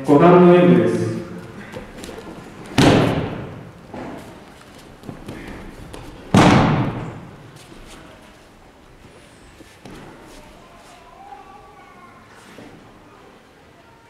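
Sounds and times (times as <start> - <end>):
body slapping mats: 1.4 - 8.4, 9.0 - 10.4.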